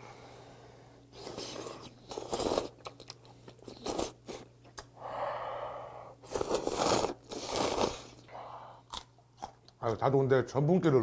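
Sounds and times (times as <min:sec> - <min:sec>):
person slurping noodles: 0:06.2 - 0:08.2.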